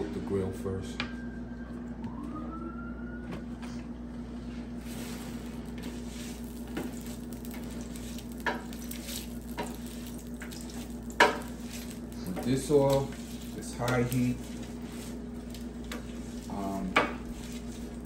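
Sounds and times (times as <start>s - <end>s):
steady low hum: 0.0s - 18.0s
short rising whine: 0.6s - 7.9s
oil sizzling on griddle: 4.8s - 18.0s.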